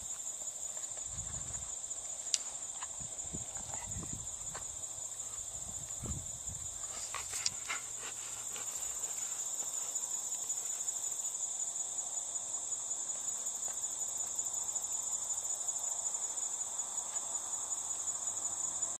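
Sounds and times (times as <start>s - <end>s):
insect chorus chirring: 0.0s - 19.0s.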